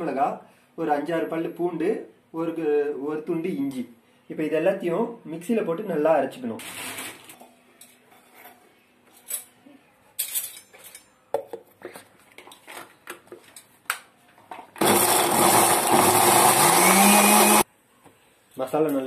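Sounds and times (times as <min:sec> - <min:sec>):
electric mixer grinder running: 0:14.8 - 0:17.6.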